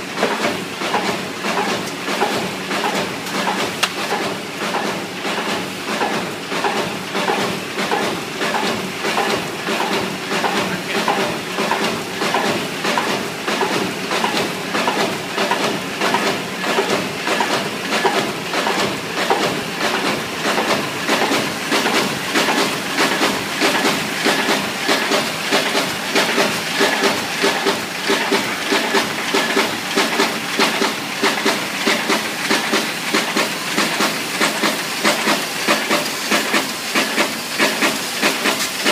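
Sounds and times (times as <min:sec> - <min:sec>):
paper machine rapid clatter: 0:00.0 - 0:38.9
steady machine hiss: 0:19.7 - 0:38.9.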